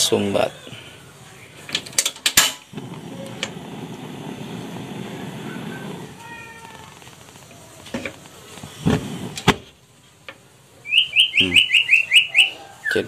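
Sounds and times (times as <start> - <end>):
gas flame rushing: 1.0 - 10.4.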